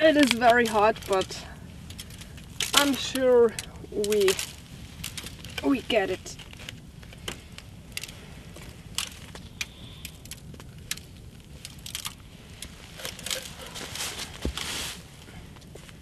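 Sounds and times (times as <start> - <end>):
crackles and clicks: 0.0 - 16.0.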